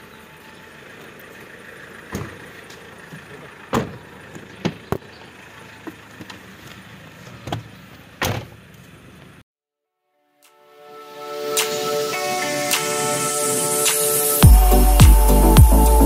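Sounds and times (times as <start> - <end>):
car engine idling: 0.0 - 9.4, 14.4 - 16.0
car door shutting: 2.1 - 8.7.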